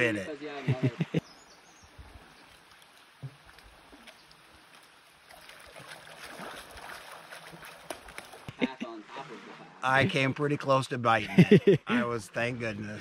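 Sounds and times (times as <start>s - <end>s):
stream running and splashing: 0.0s - 13.0s
boots knocking on logs: 3.2s - 3.5s.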